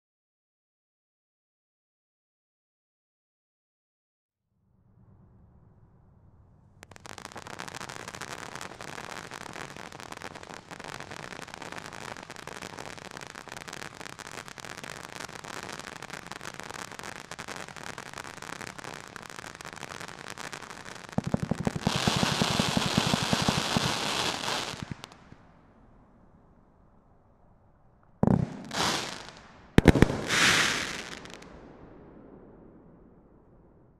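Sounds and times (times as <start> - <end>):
firework fountain crackling: 6.8 - 25.4, 28.2 - 31.7
firework volley of shots: 6.8 - 25.5, 28.2 - 33.9.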